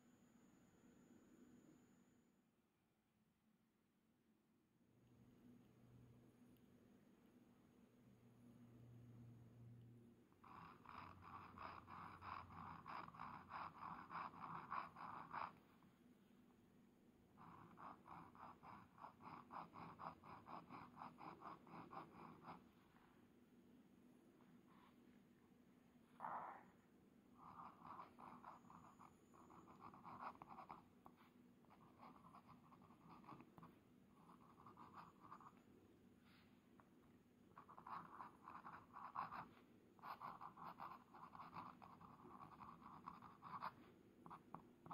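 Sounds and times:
pen nib scratching on paper: 10.4 - 15.8, 17.3 - 23.1, 27.4 - 35.7, 37.5 - 44.9.

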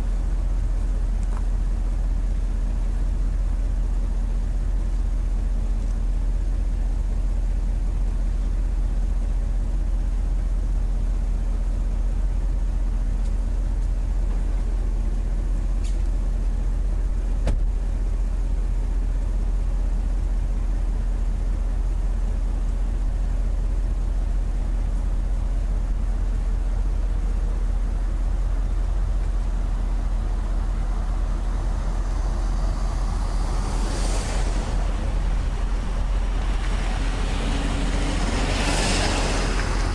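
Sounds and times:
faint constant hum: 0.0 - 39.9
vehicle engine and road noise: 0.0 - 39.9
rush of noise: 30.2 - 39.9.

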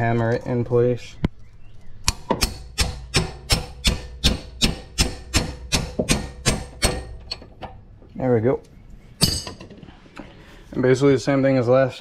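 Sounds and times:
sledgehammer striking metal tool: 2.1 - 7.4, 9.2 - 9.6.

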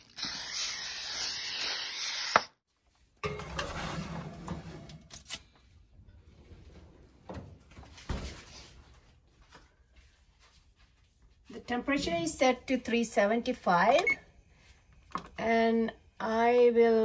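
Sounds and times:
aerosol can spraying: 0.0 - 2.5
baking pan scraping on oven rack: 3.2 - 5.1.

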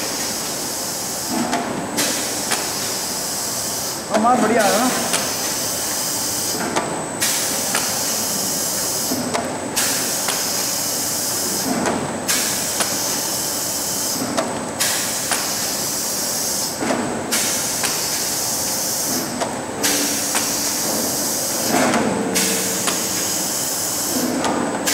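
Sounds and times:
compressed air hiss: 9.8 - 11.7, 14.8 - 24.3
stamping machine knocks and clicks: 11.6 - 13.0, 19.1 - 23.3, 24.1 - 24.9.

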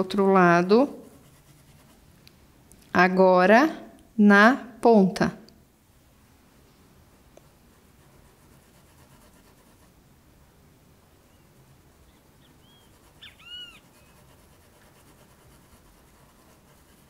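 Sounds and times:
animal chirps: 11.3 - 14.2.

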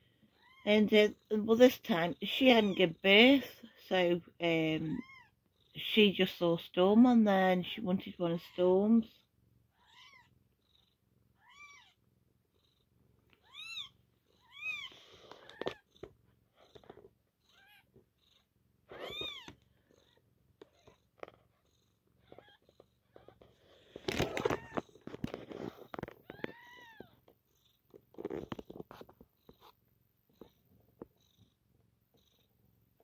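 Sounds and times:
cat purring: 0.0 - 33.0
rustling and handling noise: 18.9 - 19.9, 22.2 - 31.2
kittens mewing: 18.9 - 20.2.

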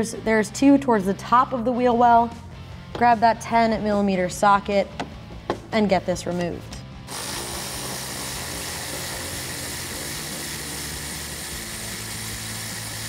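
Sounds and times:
electric ratchet running: 7.1 - 13.0.

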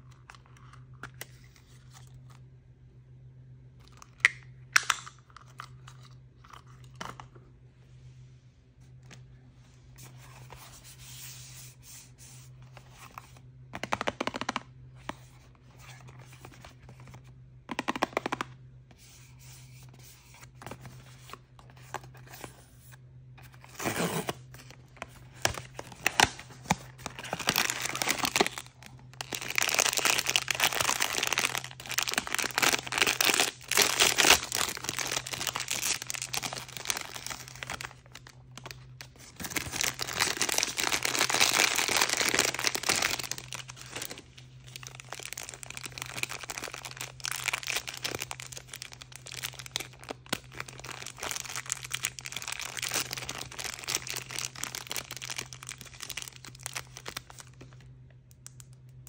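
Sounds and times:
plastic packaging crinkling and tearing: 23.4 - 59.0.

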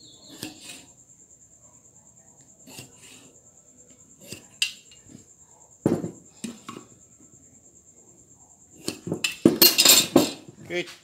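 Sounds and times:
tools knocking on wooden bar: 5.8 - 6.2.

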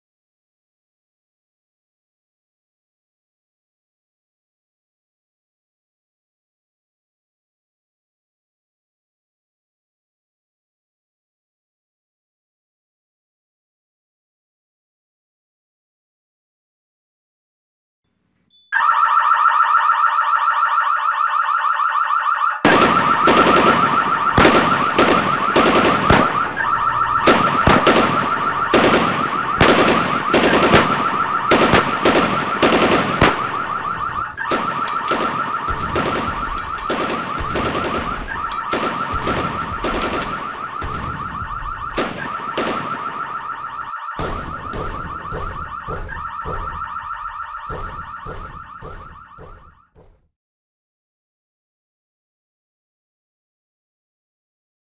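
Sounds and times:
high electronic alarm tone: 18.6 - 49.9
heavy sharp hits: 44.2 - 49.7.

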